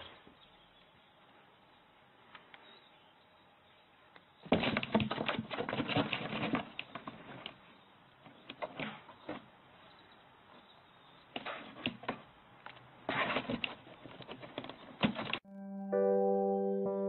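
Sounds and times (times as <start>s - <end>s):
cat scratching cardboard box: 4.5s - 7.4s.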